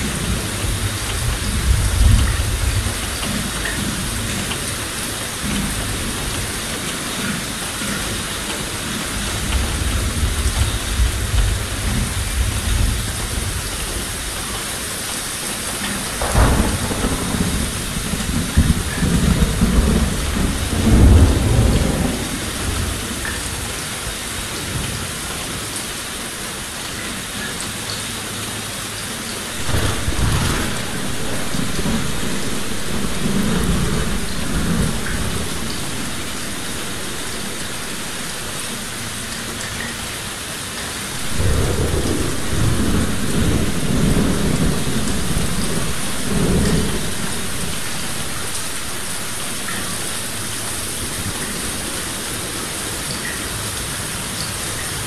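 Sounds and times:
rolling thunder: 0.0s - 4.5s, 15.6s - 23.3s, 29.5s - 39.9s, 41.1s - 52.5s
heavy rain on leaves: 0.0s - 55.0s.

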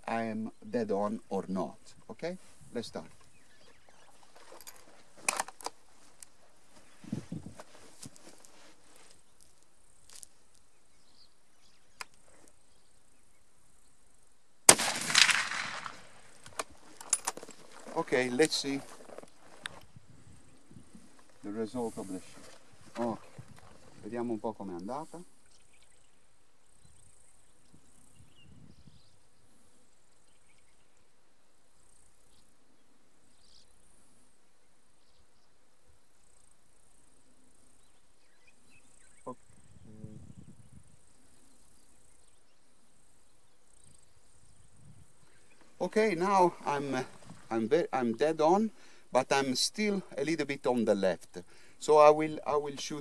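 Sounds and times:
rifle shot: 14.7s - 16.7s
insects trilling: 33.2s - 53.0s.

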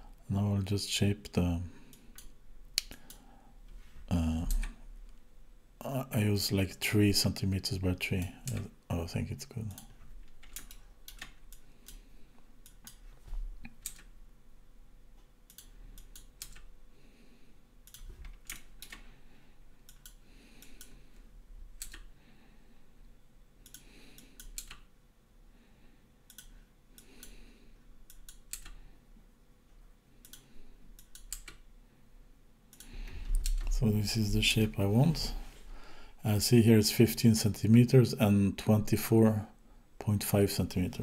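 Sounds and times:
computer mouse clicks: 9.7s - 12.0s, 12.6s - 14.1s, 15.5s - 16.7s, 17.8s - 19.1s, 19.8s - 21.0s, 21.8s - 22.1s, 23.6s - 24.9s, 26.3s - 27.4s, 28.0s - 28.8s, 30.2s - 31.6s, 32.7s - 33.7s.

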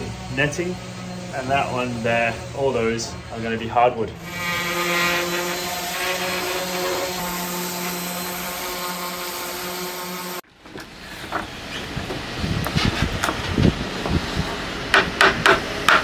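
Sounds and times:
orbit sander on wood: 0.0s - 10.4s.

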